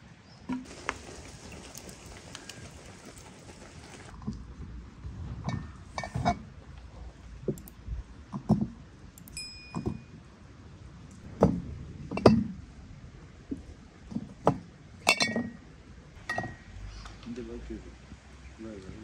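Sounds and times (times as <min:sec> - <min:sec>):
glass bottle ringing: 0:09.4 - 0:10.1.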